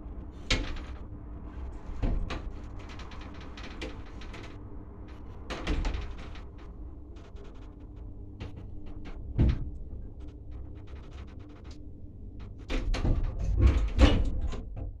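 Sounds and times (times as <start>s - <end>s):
elevator hum: 0.0s - 15.0s
door hardware clatter: 5.2s - 11.8s
elevator thump: 9.2s - 10.0s.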